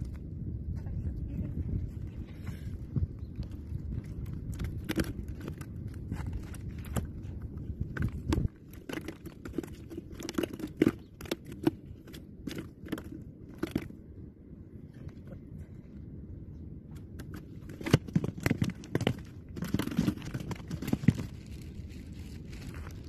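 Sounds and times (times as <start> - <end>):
wind on microphone: 0.0 - 23.0
fish handled in plastic cooler: 4.3 - 14.0, 17.2 - 23.0.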